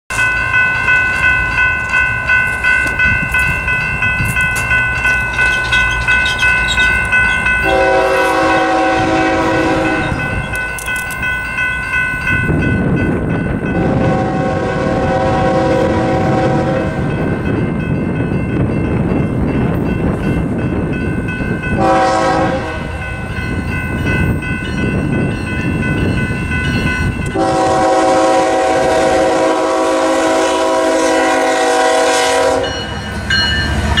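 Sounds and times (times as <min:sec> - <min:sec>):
crossing bell ringing: 0:00.1 - 0:34.0
train rumble: 0:00.1 - 0:34.0
locomotive air horn blasts: 0:07.6 - 0:10.3, 0:13.7 - 0:17.1, 0:21.8 - 0:23.0, 0:27.3 - 0:32.9.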